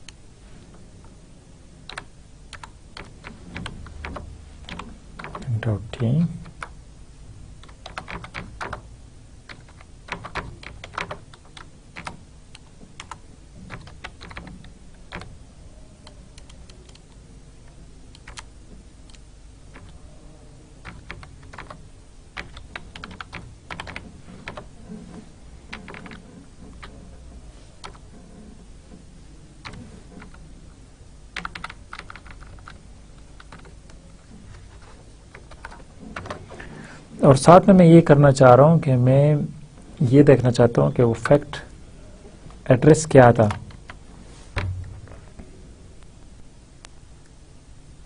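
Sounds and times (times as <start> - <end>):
typing on computer keyboard: 1.9 - 5.5, 7.6 - 8.9, 9.5 - 15.3, 16.0 - 17.2, 18.1 - 18.5, 19.1 - 20.0, 20.8 - 21.8, 22.4 - 24.7, 25.7 - 27.0, 27.8 - 28.0, 29.6 - 30.4, 31.4 - 34.0, 35.3 - 36.4.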